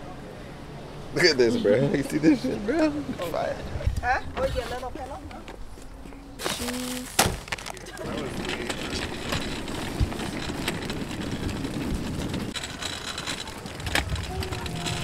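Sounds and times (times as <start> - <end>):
wagon wheels rolling over pavement: 6.4 - 15.0.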